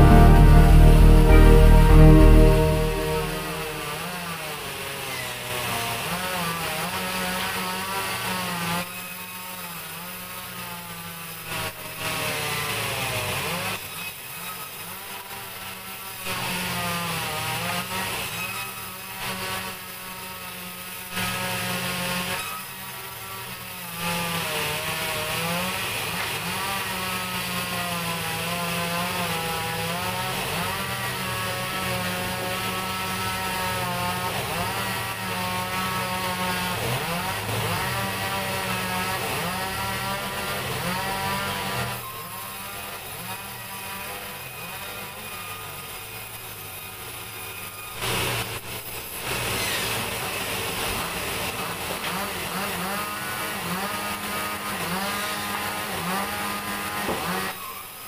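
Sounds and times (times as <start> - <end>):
band saw cutting wood: 50.7 - 57.7.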